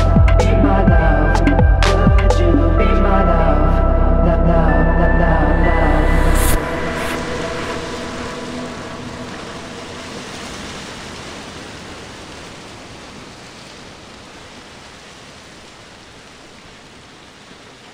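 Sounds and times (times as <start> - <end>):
rain-like hiss of noise: 6.5 - 17.9.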